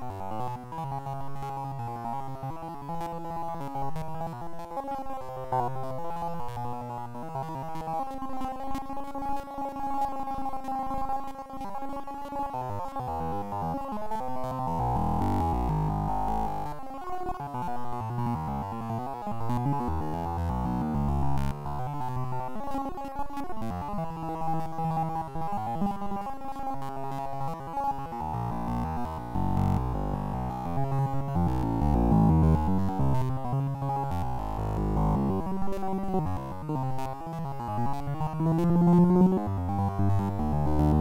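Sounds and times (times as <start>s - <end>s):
synthesizer chords music: 18.3s - 21.8s, 28.2s - 36.8s, 37.9s - 41.0s.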